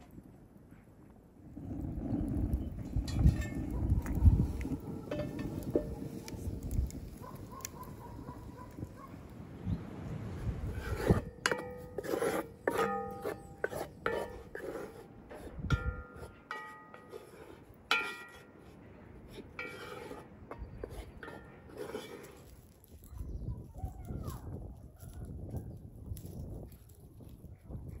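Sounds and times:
spatula scraping: 2.6s - 7.8s, 10.4s - 23.0s
metal bowl clinking on pot: 11.4s - 14.7s, 15.7s - 18.6s.

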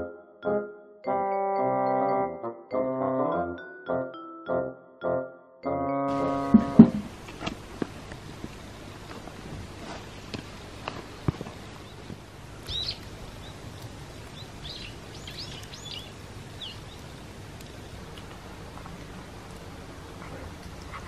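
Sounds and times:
small birds chirping: 11.0s - 18.2s.

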